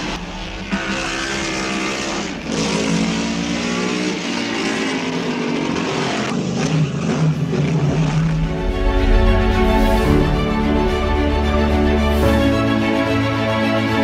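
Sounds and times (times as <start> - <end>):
racing car engine at high revs: 0.0 - 8.6.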